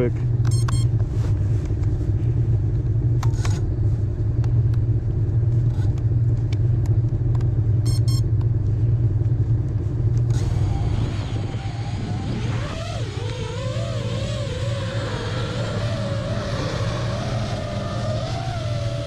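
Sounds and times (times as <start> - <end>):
snowmobile engines idling: 8.6 - 19.0.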